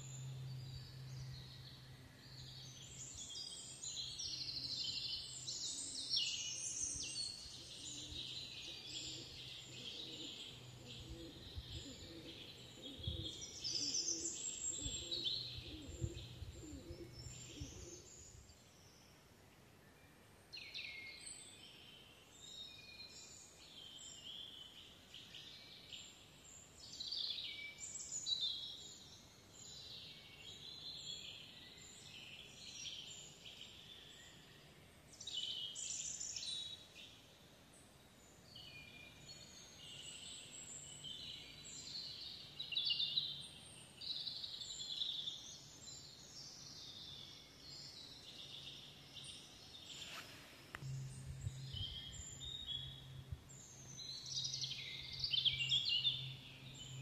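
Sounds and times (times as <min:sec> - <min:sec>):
birds singing: 0:00.0 - 0:19.2, 0:20.6 - 0:57.0
faint low rumble: 0:50.2 - 0:57.0.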